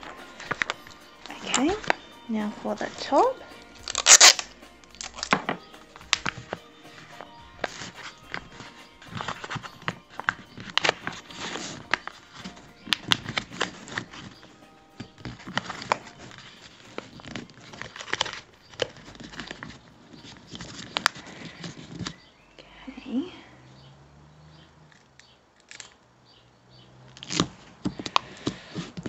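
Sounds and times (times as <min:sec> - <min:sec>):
paper bag crinkling: 0:00.0 - 0:22.2.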